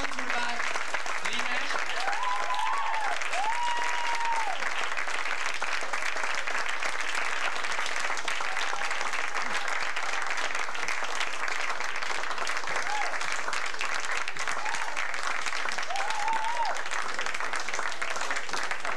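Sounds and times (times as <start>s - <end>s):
audience applauding: 0.0s - 18.9s
high calls from audience: 1.7s - 4.6s, 15.9s - 16.8s.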